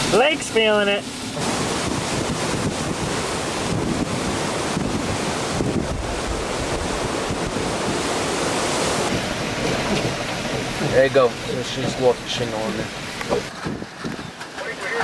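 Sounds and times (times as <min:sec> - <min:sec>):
strong wind on microphone: 0:01.3 - 0:10.9, 0:12.9 - 0:14.4.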